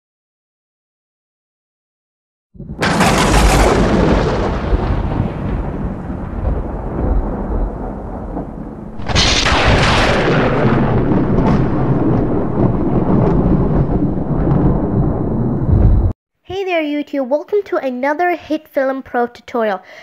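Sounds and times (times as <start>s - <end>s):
thunder-like booms: 2.6s - 16.2s.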